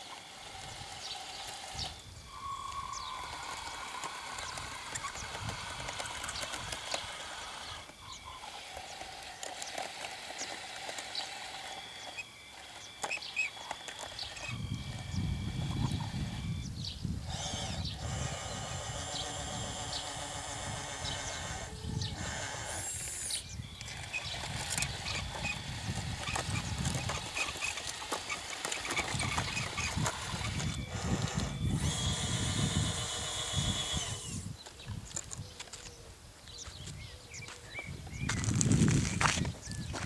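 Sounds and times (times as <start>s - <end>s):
electric motors and gearboxes whining: 0.0s - 35.5s, 37.3s - 40.0s
low wind rumble on microphone: 14.5s - 27.6s, 29.0s - 40.0s.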